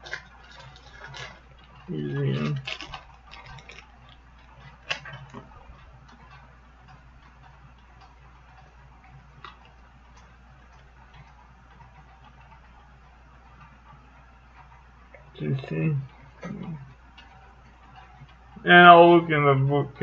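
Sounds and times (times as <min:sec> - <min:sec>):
low steady hum: 0:00.0 - 0:20.0.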